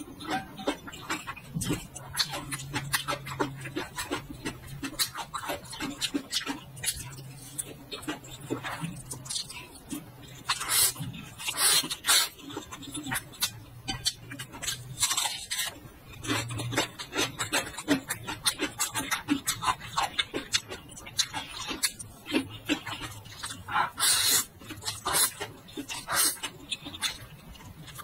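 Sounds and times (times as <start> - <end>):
crunchy chewing: 0.0 - 28.0
noodle slurping: 23.6 - 26.4.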